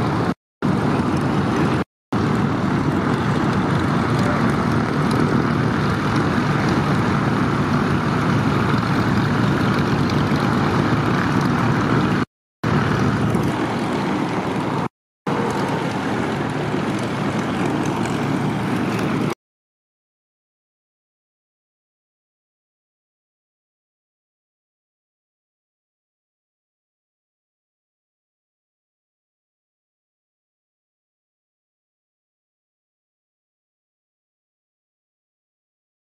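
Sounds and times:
propeller aircraft engines droning: 0.0s - 19.4s.

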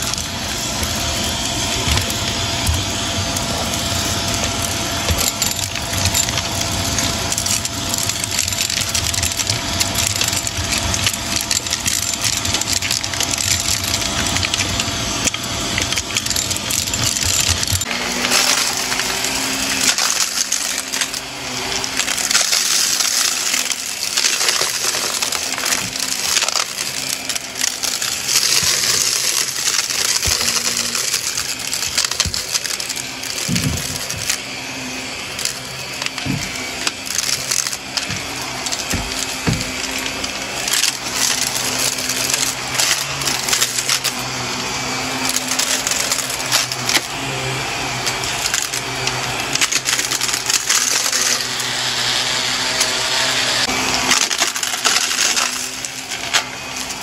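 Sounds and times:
debris crackling in vacuum: 0.0s - 57.0s
vacuum cleaner running: 0.0s - 57.0s.

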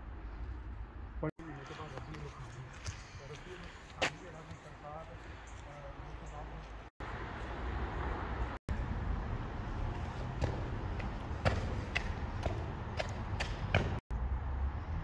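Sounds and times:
echoing footsteps on stone: 1.6s - 5.8s, 9.7s - 14.0s.

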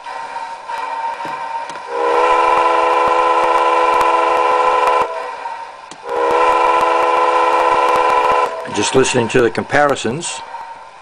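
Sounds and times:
locomotive horn blasts: 1.9s - 9.2s.

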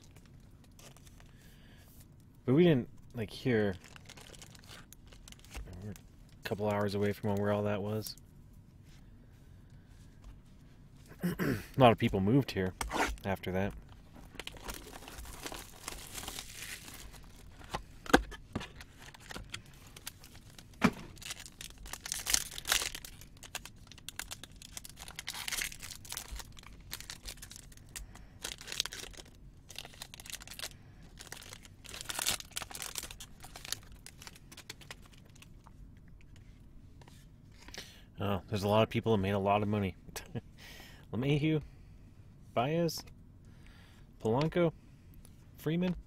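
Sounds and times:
plastic wrapper tearing and crinkling: 3.7s - 7.4s, 14.2s - 35.6s.

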